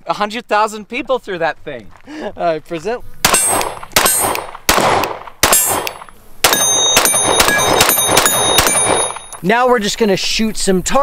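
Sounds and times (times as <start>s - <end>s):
handgun shots: 3.2s - 9.4s
steel targets ringing: 5.4s - 9.4s.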